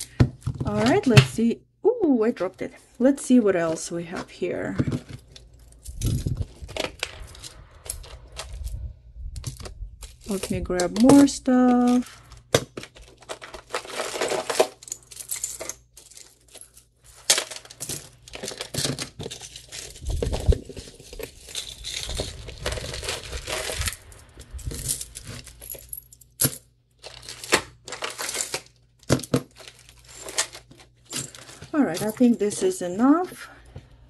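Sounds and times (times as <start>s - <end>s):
plastic bags crinkling: 9.4s - 25.8s, 27.0s - 32.8s
metal jewelry clinking: 13.4s - 20.2s, 21.0s - 28.6s, 29.2s - 33.2s.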